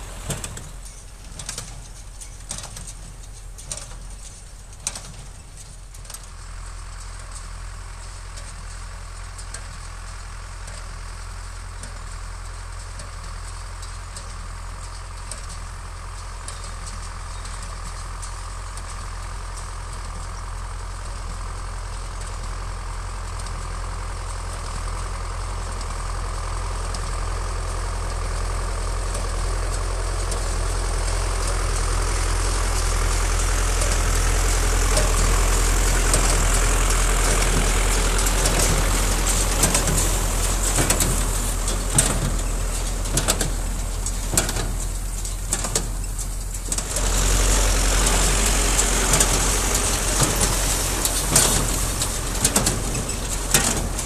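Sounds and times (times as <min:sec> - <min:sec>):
tractor diesel engine: 0:00.0 - 0:54.0
baler knocking and clattering: 0:34.8 - 0:54.0.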